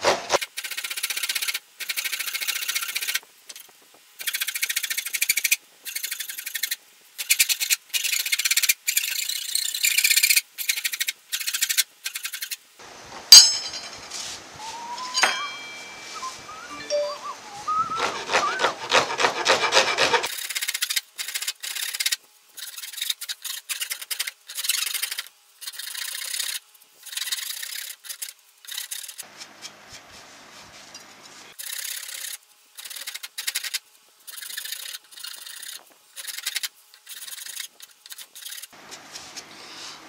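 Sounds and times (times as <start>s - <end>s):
metal file rasping wood: 17.8s - 20.4s.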